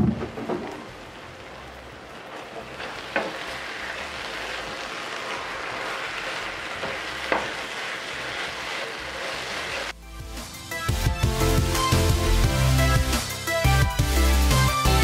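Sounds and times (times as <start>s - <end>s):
food sizzling in a skillet: 0.8s - 10.0s.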